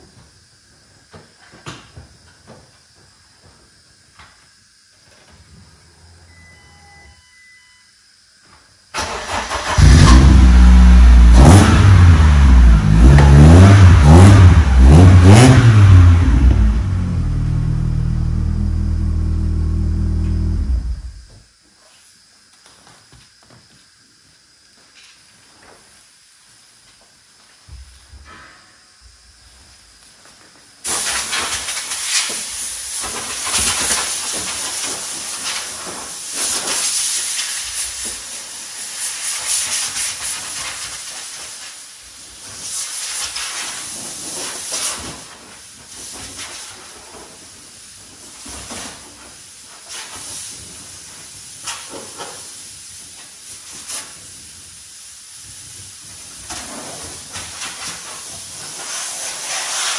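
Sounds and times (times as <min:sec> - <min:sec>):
pressure washer jet hissing: 0:30.9 - 0:41.8, 0:57.5 - 0:59.9.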